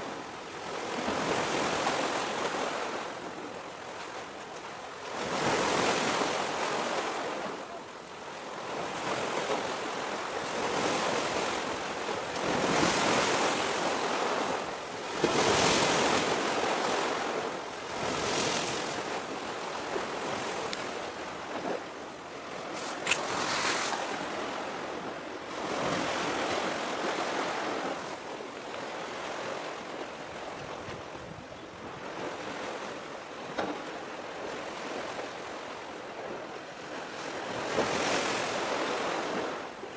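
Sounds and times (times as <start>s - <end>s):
sea waves washing against concrete: 0.0s - 31.2s, 32.0s - 39.8s
wind on microphone: 29.0s - 32.9s.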